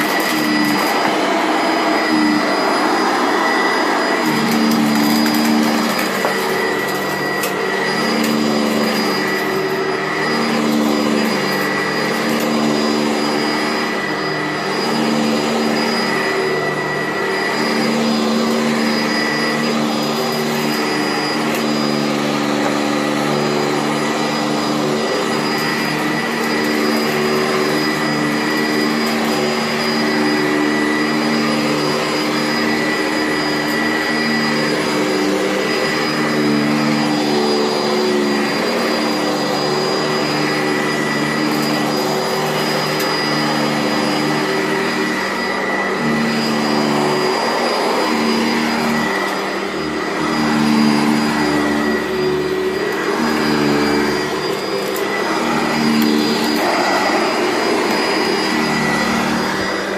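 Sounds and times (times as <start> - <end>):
vacuum cleaner running: 0.0 - 59.9.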